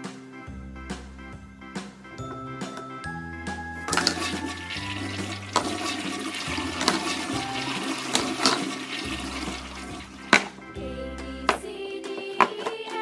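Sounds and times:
toilet flushing: 3.9 - 10.6.

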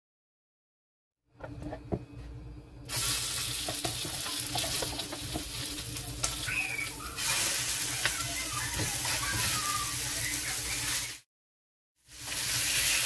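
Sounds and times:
chicken sizzling in a frying pan: 2.9 - 11.2, 12.0 - 13.0.

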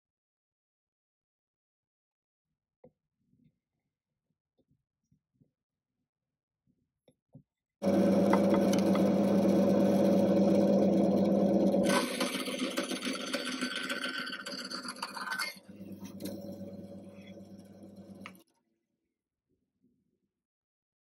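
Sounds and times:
band saw cutting wood: 7.8 - 18.4.

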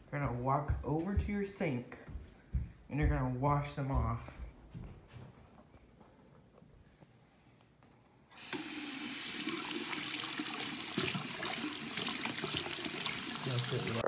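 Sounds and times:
faucet water running into basin: 8.3 - 14.0.

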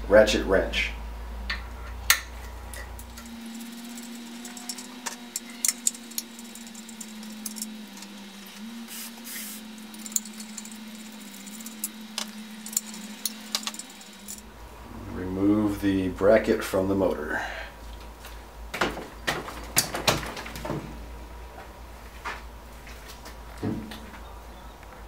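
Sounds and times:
steady low hum: 0.0 - 19.3
wrench clicking on bolts: 2.1 - 8.1.

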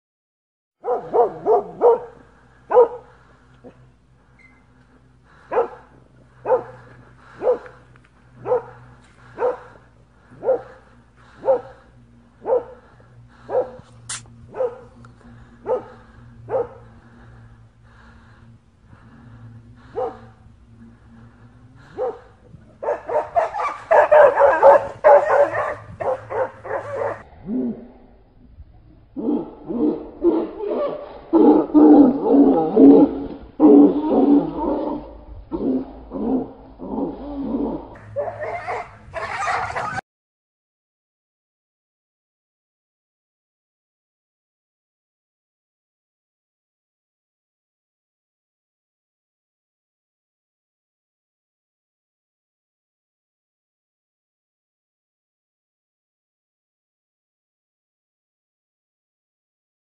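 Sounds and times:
dog barking: 0.8 - 3.1, 5.4 - 7.8, 8.4 - 8.8, 9.4 - 11.8, 12.4 - 12.9, 13.5 - 13.9, 14.5 - 14.9, 15.6 - 16.9, 19.9 - 20.3, 21.9 - 27.2, 38.1 - 40.0.

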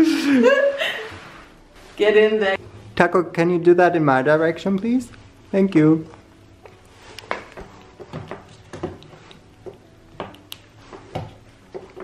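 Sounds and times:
soft rustling: 0.8 - 2.6.

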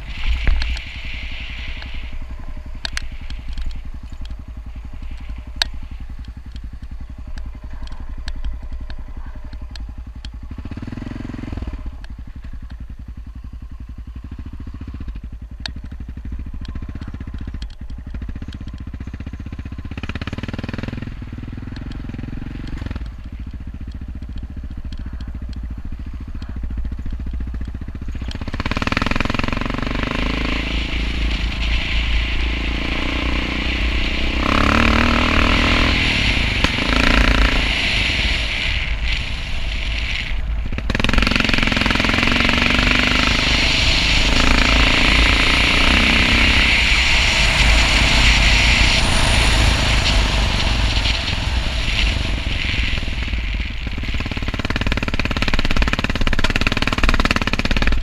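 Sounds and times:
wind noise on microphone: 0.0 - 6.4, 28.5 - 56.5
motorcycle engine running: 0.0 - 58.0.

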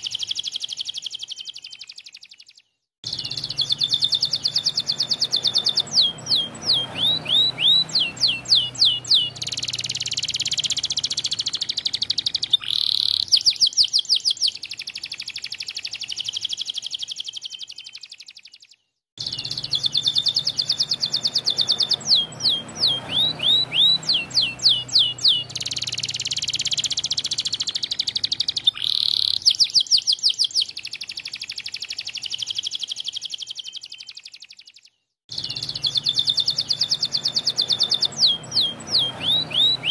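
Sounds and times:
canary singing: 0.0 - 39.9.

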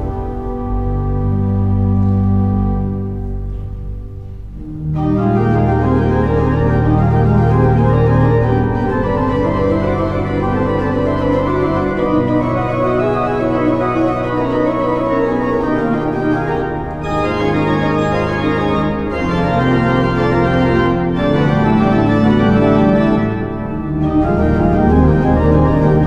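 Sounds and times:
pipe organ playing: 0.0 - 26.0.

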